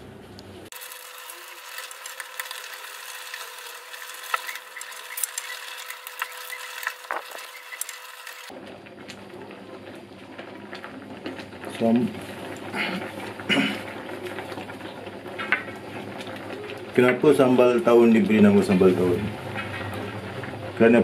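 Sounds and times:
wooden spatula stirring in pot: 0:00.7 - 0:20.8
clicks and knocks against pot: 0:09.9 - 0:17.3.

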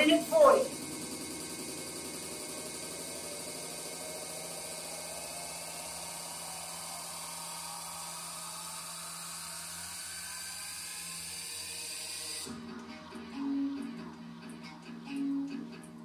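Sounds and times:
whirring hiss: 0:00.0 - 0:12.6.

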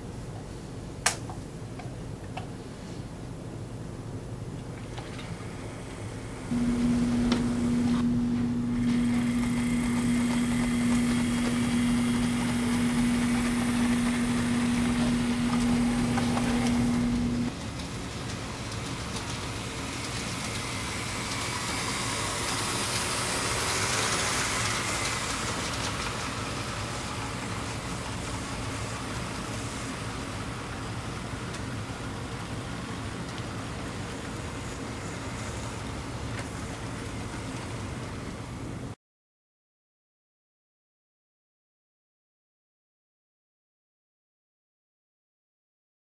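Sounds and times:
steady humming tone: 0:00.0 - 0:38.6
model train cars rolling: 0:04.6 - 0:38.8.

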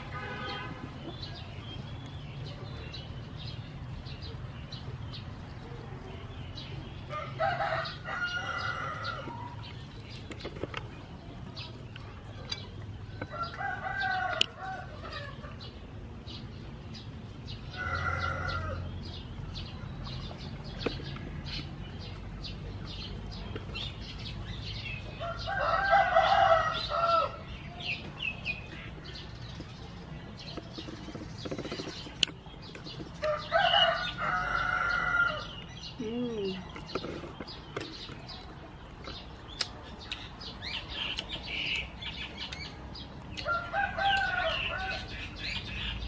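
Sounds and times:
small birds chirping: 0:00.0 - 0:46.0
rooster crowing: 0:07.1 - 0:09.4, 0:17.7 - 0:18.9, 0:25.2 - 0:27.4, 0:33.2 - 0:35.6, 0:43.4 - 0:45.2.

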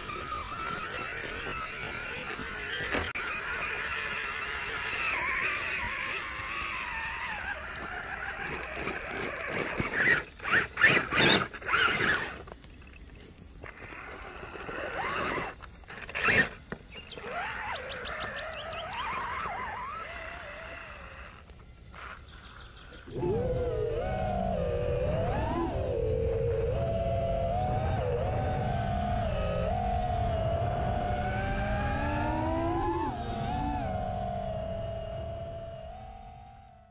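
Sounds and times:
electric motor whining: 0:00.0 - 0:12.7, 0:13.6 - 0:36.9
tyres crunching on rock and gravel: 0:00.0 - 0:23.0.

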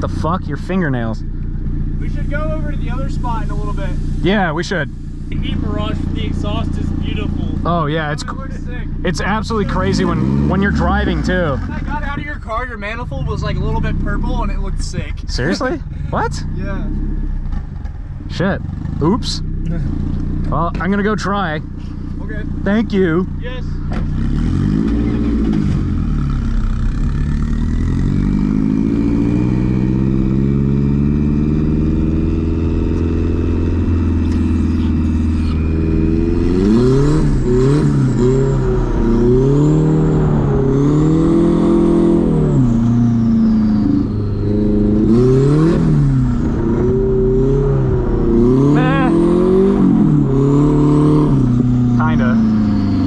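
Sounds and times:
car engine revving: 0:00.0 - 0:53.0
turbo whistle: 0:43.3 - 0:44.8.

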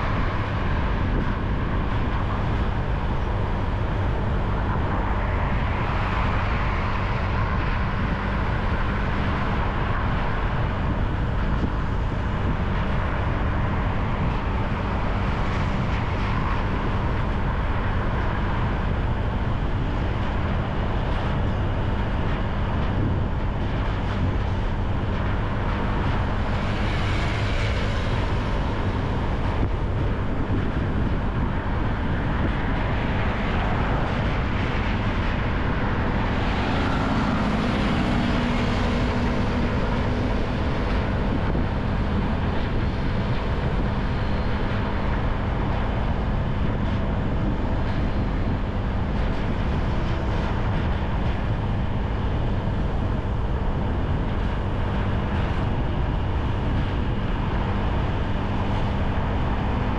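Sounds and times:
motorcycle riding through traffic: 0:33.8 - 0:45.1.

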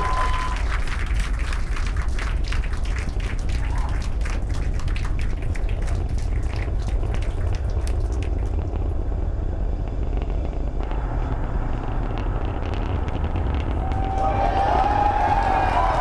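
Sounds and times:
crowd cheering: 0:00.0 - 0:04.4, 0:13.7 - 0:16.0
rocket engine rumble: 0:00.0 - 0:16.0.

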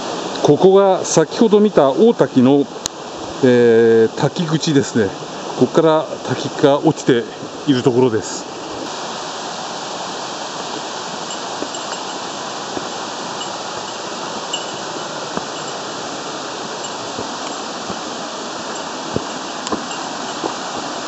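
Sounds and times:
waterfall rushing: 0:00.0 - 0:21.0
footsteps on wooden steps: 0:11.2 - 0:21.0.

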